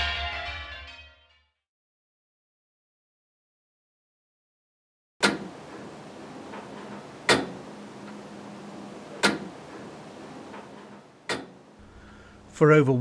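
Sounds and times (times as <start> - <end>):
low steady hum: 5.5 - 13.0.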